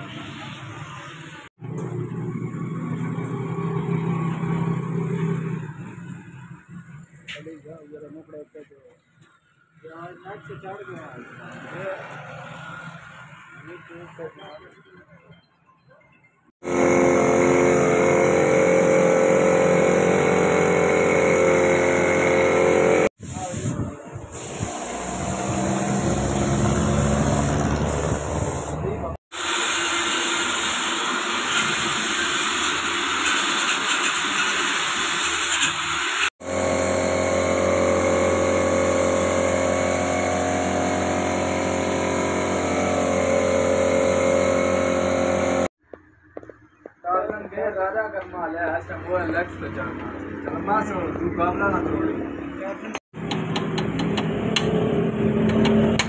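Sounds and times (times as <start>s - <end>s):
angle grinder whining on steel: 16.6s - 23.1s, 29.4s - 45.7s.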